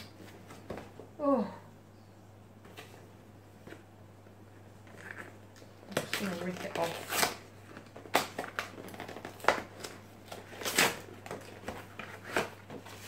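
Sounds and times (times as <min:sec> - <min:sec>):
cardboard box being torn: 0:05.9 - 0:07.4, 0:08.1 - 0:12.7.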